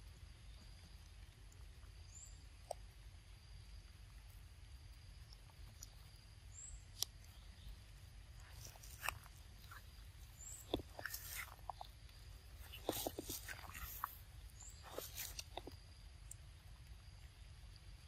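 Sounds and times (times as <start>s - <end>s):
monkeys biting and handling fruit: 5.3s - 18.0s.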